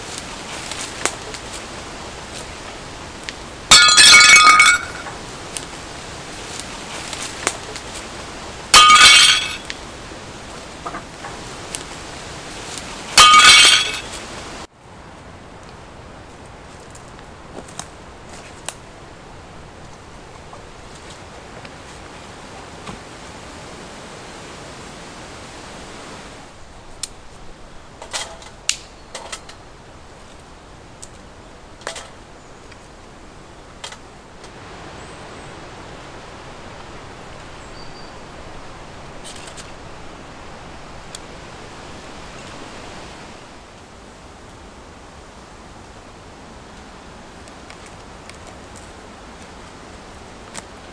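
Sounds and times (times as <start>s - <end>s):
dry twigs snapping: 0.0s - 8.2s, 16.7s - 18.9s, 26.9s - 27.4s, 28.0s - 29.6s, 47.4s - 50.8s
leaves rustling in breeze: 0.0s - 50.9s.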